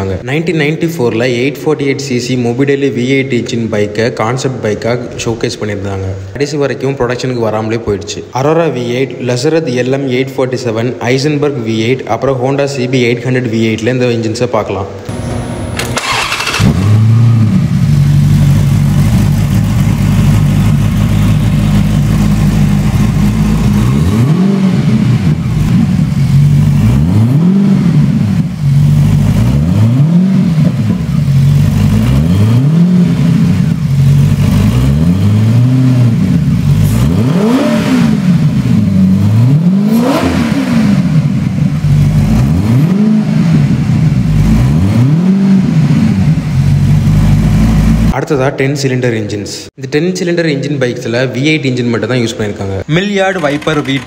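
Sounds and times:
car engine idling and revving: 0:15.1 - 0:48.2.

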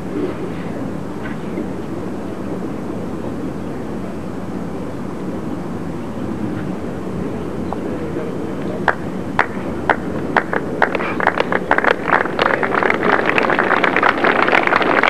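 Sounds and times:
background hiss: 0:00.0 - 0:15.0
spectators clapping: 0:08.8 - 0:15.0.

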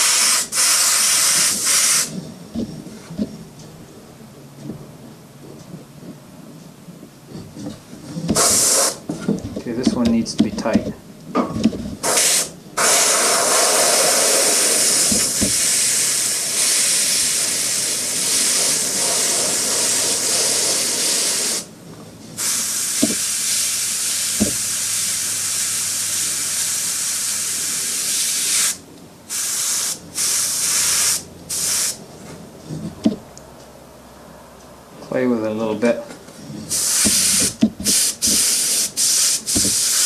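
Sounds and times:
airbrush spraying hiss: 0:00.0 - 0:02.2, 0:08.3 - 0:09.0, 0:12.0 - 0:21.7, 0:22.4 - 0:32.0, 0:36.7 - 0:40.0.

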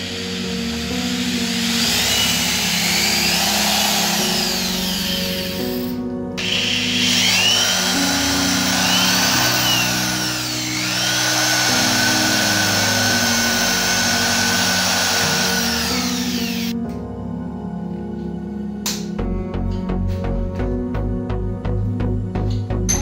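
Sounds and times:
electric drill whining: 0:00.0 - 0:16.8
background music: 0:00.0 - 0:23.0.

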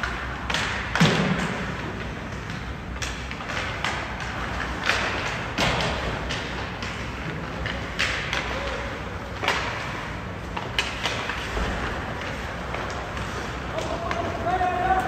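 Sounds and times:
hockey sticks and puck knocking: 0:00.0 - 0:15.0
ice rink noise: 0:00.0 - 0:15.0.

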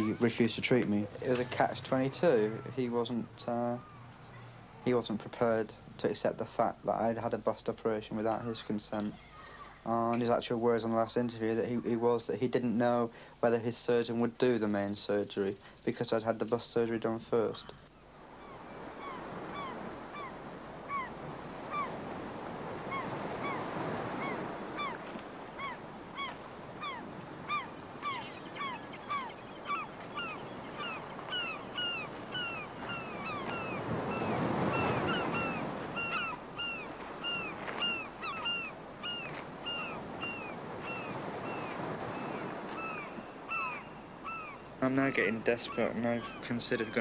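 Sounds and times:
birds calling short hooked calls: 0:17.7 - 0:22.0, 0:22.8 - 0:44.8
waves washing onto shingle: 0:18.2 - 0:29.0, 0:29.6 - 0:43.5.

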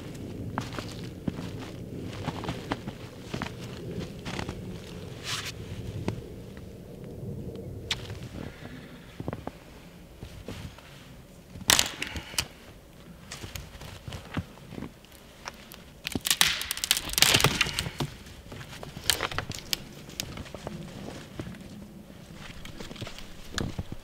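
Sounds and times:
footsteps on snow and twigs: 0:00.0 - 0:06.7, 0:07.9 - 0:24.0
wood cracking: 0:11.6 - 0:24.0.

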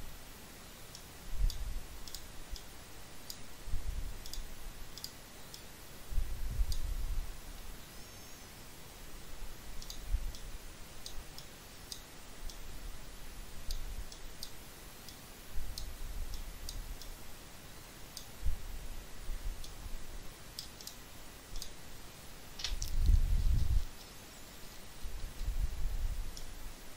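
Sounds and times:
computer mouse clicking: 0:00.9 - 0:03.4, 0:04.2 - 0:05.7, 0:09.8 - 0:12.6, 0:20.5 - 0:21.8
soft low bumps: 0:22.6 - 0:24.0.

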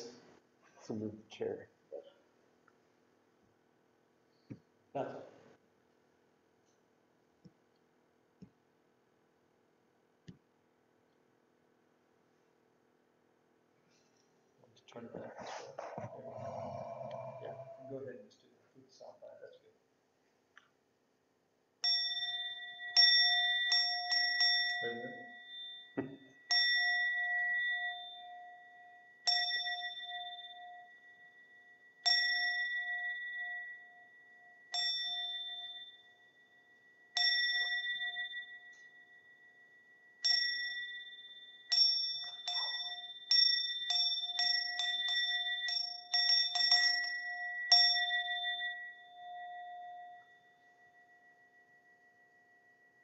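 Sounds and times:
bowl bell ringing: 0:15.9 - 0:18.1, 0:21.8 - 0:53.0.

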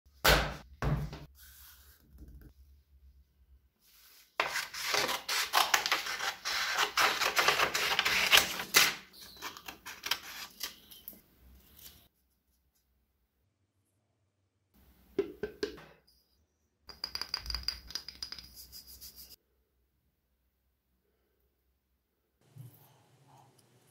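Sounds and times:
paper rustling: 0:04.1 - 0:10.9.

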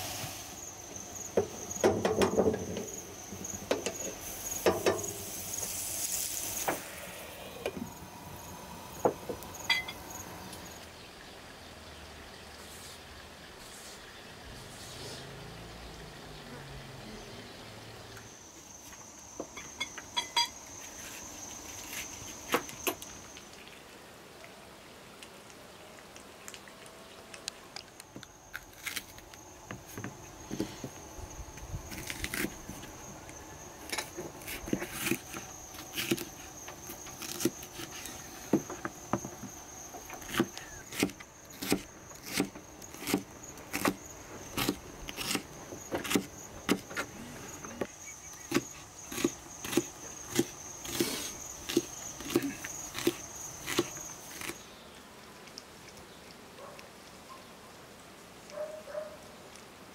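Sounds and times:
high insect chirring: 0:00.2 - 0:10.9, 0:18.1 - 0:23.6, 0:28.1 - 0:54.9.

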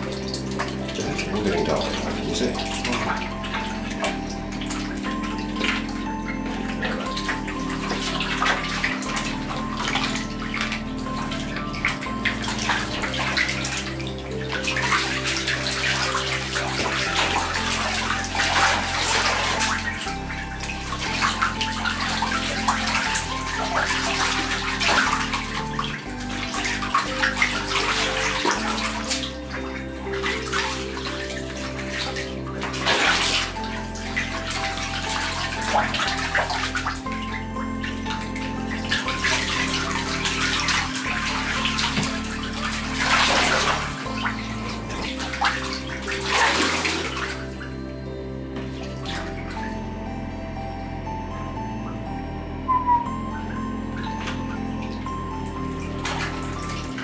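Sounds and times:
soft background music: 0:00.0 - 0:57.0
ducks splashing in water: 0:11.9 - 0:47.6.

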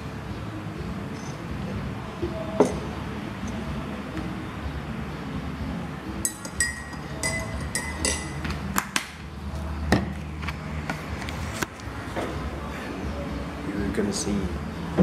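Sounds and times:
crockery and utensils clinking: 0:06.2 - 0:08.5.

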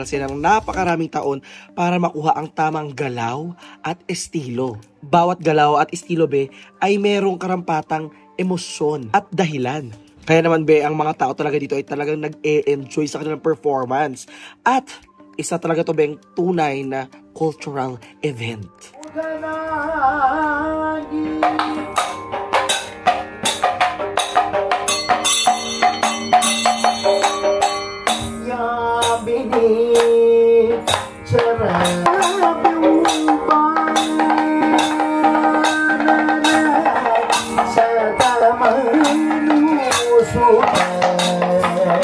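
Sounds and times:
cymbal strikes: 0:21.4 - 0:29.3
fast drum strokes: 0:30.8 - 0:42.0.

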